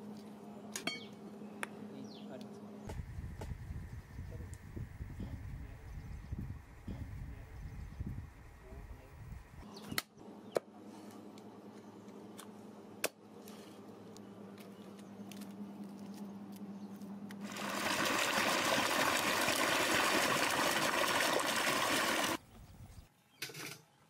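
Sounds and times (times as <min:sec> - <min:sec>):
water pouring into steel bowl: 0:17.4 - 0:22.4.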